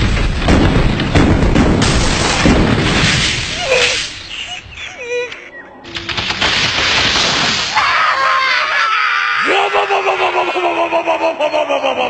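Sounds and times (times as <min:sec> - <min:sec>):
cartoon booming and rumbling: 0:00.0 - 0:04.1
sharp impacts: 0:00.0 - 0:04.4, 0:05.9 - 0:08.2.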